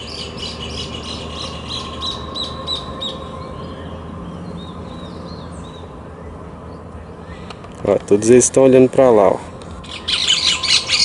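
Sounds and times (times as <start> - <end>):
birds giving sharp alarm calls: 9.8 - 11.0.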